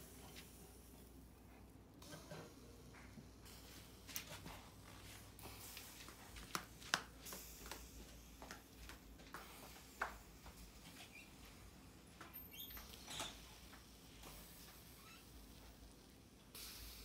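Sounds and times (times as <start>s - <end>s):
faint sizzle on grill: 0.0s - 6.0s, 9.4s - 17.0s.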